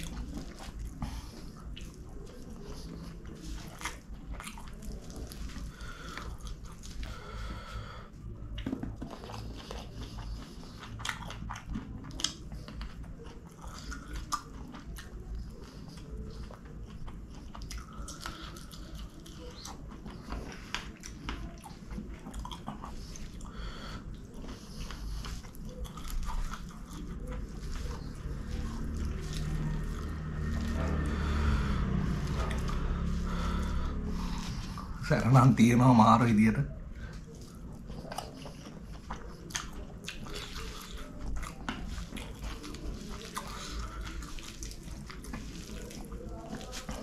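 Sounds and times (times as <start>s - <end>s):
close chewing and mouth clicks: 0.0s - 47.0s.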